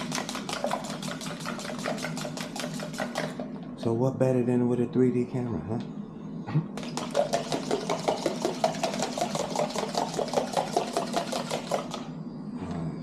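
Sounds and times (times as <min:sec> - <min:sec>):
eggs beaten in plastic cup: 0:00.0 - 0:03.5, 0:06.8 - 0:12.1.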